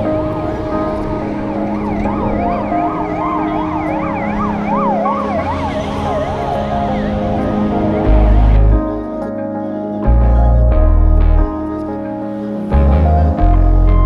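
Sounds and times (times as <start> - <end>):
siren-like wailing tone: 0.0 - 9.1
background music with held chords: 0.0 - 14.0.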